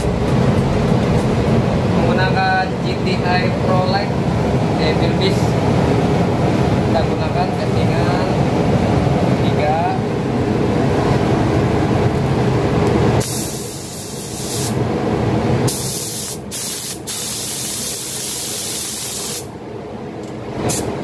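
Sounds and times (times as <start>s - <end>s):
low rumble: 0.0s - 4.5s
air spray gun hissing: 13.2s - 14.8s, 15.7s - 19.5s, 20.7s - 21.0s.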